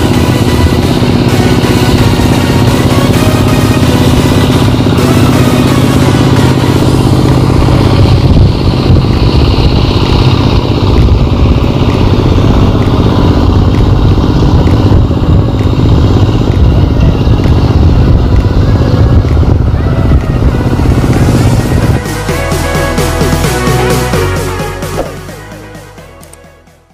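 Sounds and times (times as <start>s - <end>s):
small engine running: 0.0s - 26.9s.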